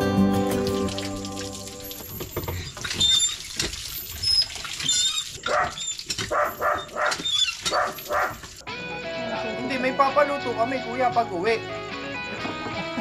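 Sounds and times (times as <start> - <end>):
water splashing: 0.0 - 8.7
dog yipping barks: 4.9 - 8.5.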